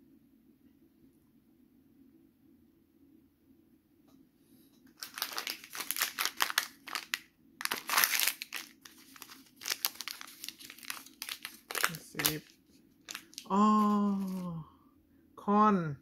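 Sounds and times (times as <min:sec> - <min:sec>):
plastic packet crinkling: 0:04.9 - 0:14.5.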